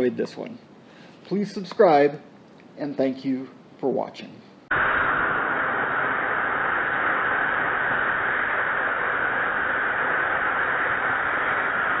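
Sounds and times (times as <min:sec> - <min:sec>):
rocket motor hissing rush: 0:04.7 - 0:12.0.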